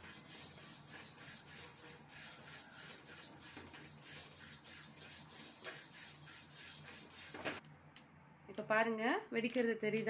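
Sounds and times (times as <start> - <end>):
spatula scraping seeds in pan: 0.0 - 7.6.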